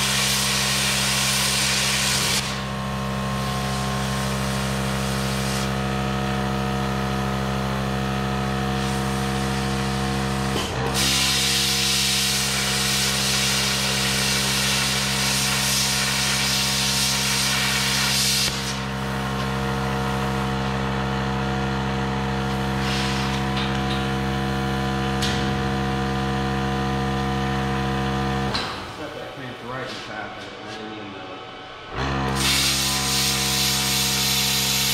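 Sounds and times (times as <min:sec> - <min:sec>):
plasma arc cutting steel hiss: 0:00.0 - 0:02.6, 0:03.4 - 0:05.8, 0:11.0 - 0:18.8, 0:22.7 - 0:23.4, 0:32.4 - 0:34.9
air compressor humming: 0:00.0 - 0:34.9.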